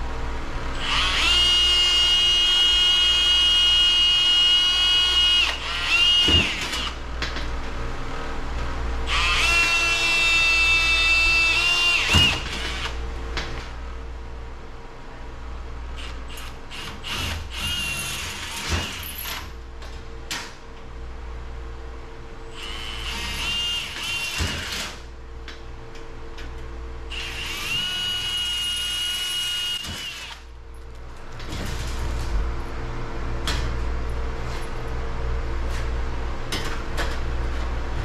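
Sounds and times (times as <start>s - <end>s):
steady low hum: 0.0s - 18.5s, 19.3s - 24.1s, 25.0s - 38.0s
drill whining through sheet metal: 0.8s - 7.0s, 9.0s - 13.0s, 16.0s - 19.5s, 22.5s - 25.1s, 27.1s - 30.5s.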